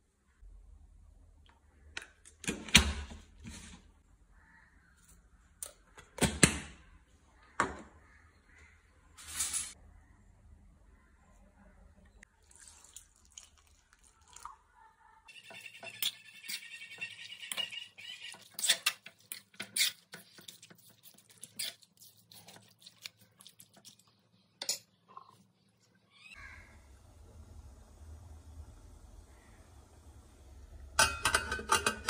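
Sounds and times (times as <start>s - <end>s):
wet stirring: 12.3s - 14.7s, 15.3s - 25.7s
metal spoon scraping metal pan: 15.4s - 22.7s, 31.0s - 32.0s.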